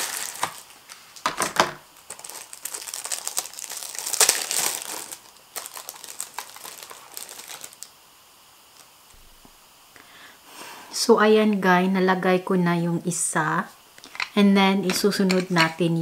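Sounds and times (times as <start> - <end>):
plastic packaging crinkling: 0.0 - 8.0, 14.0 - 15.8.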